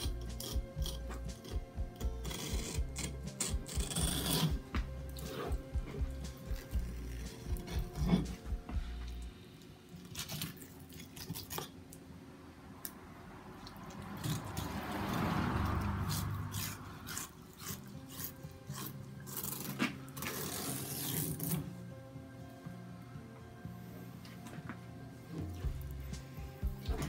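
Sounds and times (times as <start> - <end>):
knife scraping fish on board: 0.0 - 4.6.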